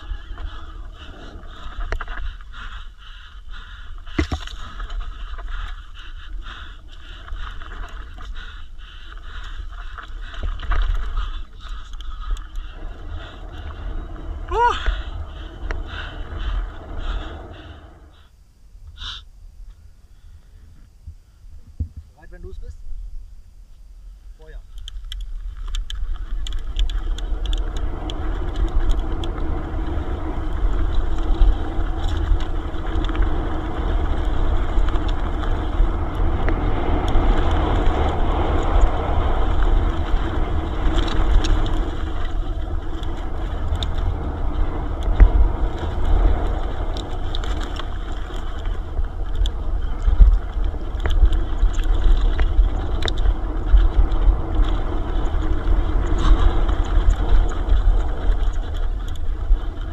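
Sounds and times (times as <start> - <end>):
bike clicks and rattles: 0.0 - 17.8, 24.7 - 59.9
wind buffeting microphone: 24.8 - 59.9.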